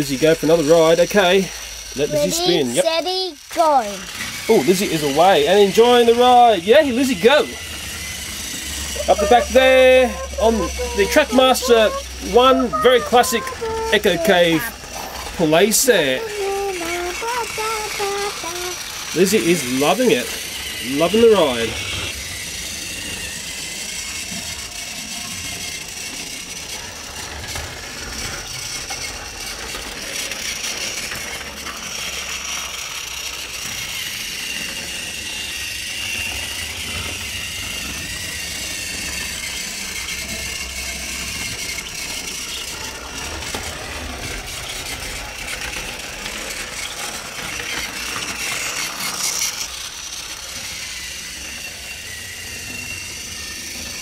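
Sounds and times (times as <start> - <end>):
toy train motor whirring: 0.0 - 54.0
wheels rattling: 3.6 - 23.2, 35.8 - 54.0.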